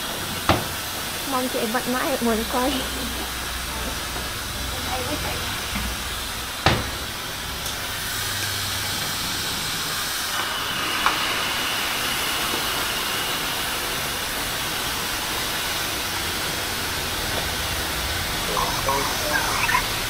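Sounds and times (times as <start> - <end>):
faint high whine: 18.4 - 20.0.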